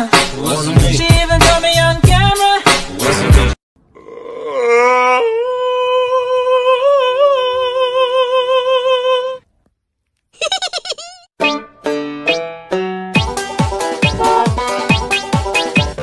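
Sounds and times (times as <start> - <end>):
song: 11.4 - 16.0.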